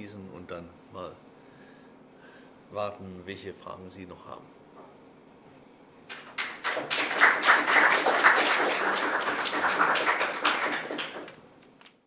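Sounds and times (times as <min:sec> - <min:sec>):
audience applauding: 0:06.1 - 0:11.4.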